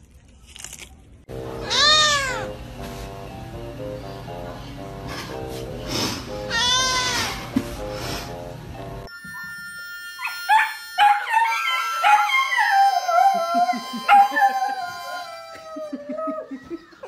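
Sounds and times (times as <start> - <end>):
harmonica chords: 1.3 - 15.6
dog howling: 10.2 - 16.7.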